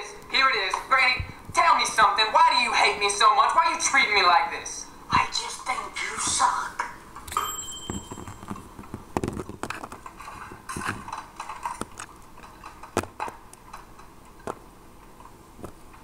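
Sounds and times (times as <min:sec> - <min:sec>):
plastic toys clicking and knocking: 0:08.1 - 0:14.6.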